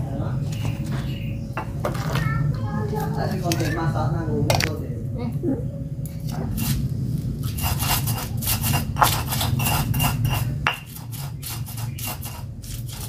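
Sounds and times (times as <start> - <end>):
stone pestle grinding in mortar: 7.4 - 13.0.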